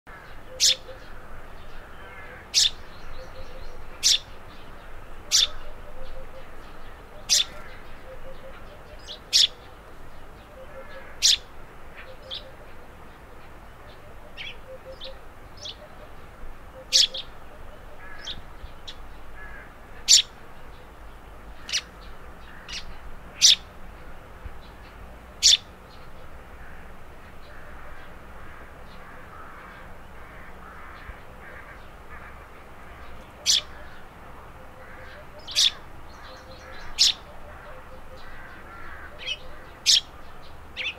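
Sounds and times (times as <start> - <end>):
sparrow chirping: 0.5 - 9.8, 10.6 - 12.8, 13.4 - 16.2, 16.8 - 19.1, 20.0 - 20.8, 21.5 - 23.7, 24.6 - 26.3, 33.0 - 34.1, 34.9 - 40.9.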